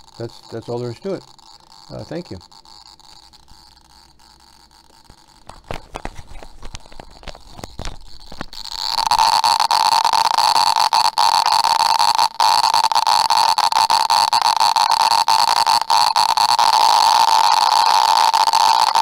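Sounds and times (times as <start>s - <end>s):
microphone knocking and rubbing: 5.4s - 9.5s.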